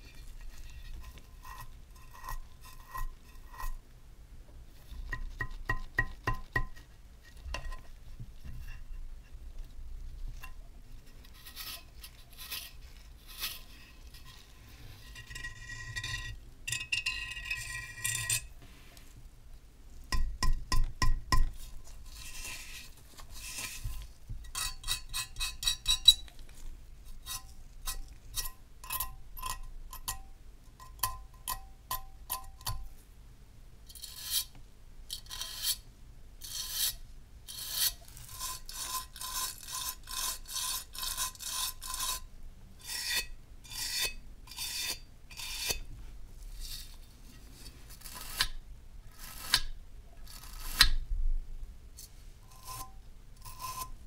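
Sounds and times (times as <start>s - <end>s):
metal lamp clinking and scraping: 13.5s - 18.5s.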